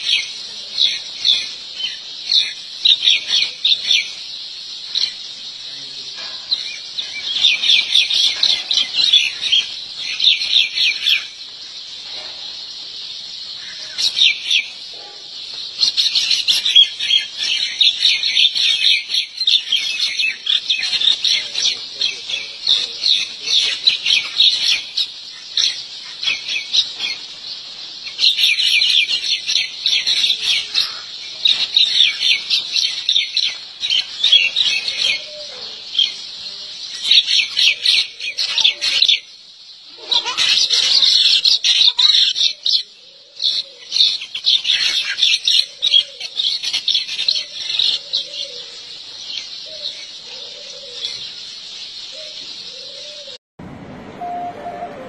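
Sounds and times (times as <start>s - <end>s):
small birds chirping: 0.0s - 53.4s.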